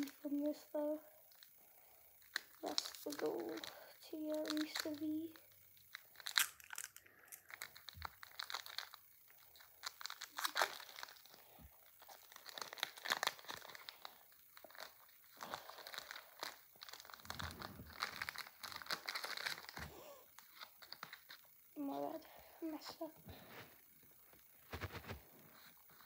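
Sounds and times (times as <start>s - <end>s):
foil wrapper crinkling and tearing: 2.2s - 5.2s, 5.8s - 21.6s, 24.3s - 26.0s.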